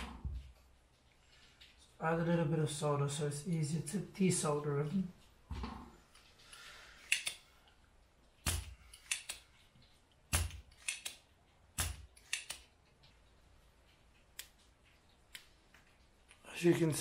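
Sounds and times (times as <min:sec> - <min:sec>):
desoldering pump snapping: 0:05.6 - 0:07.5, 0:08.2 - 0:13.1.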